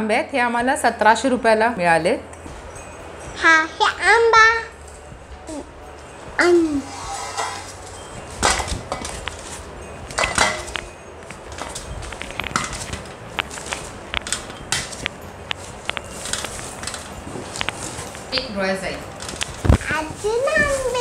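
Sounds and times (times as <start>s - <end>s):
cardboard and straw rustling: 4.8s - 21.0s.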